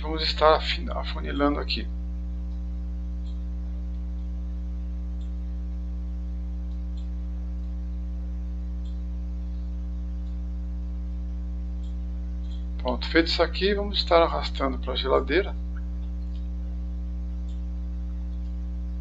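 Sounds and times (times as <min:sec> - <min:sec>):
electrical mains hum: 0:00.0 - 0:19.0
faint clicks: 0:02.4 - 0:04.4, 0:05.1 - 0:05.4, 0:06.6 - 0:08.1, 0:08.8 - 0:10.5, 0:11.7 - 0:13.0, 0:15.7 - 0:16.7, 0:17.3 - 0:18.7.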